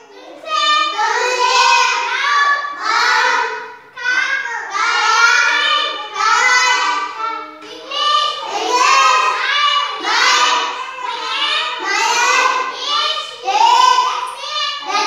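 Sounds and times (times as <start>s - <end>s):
children chanting: 0.0s - 15.0s.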